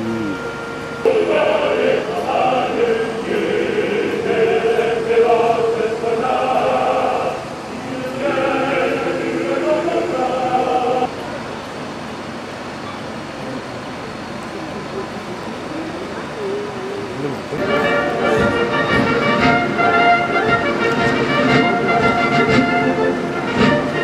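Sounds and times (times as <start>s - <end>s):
choir singing long notes: 0.0s - 11.1s, 17.6s - 24.0s.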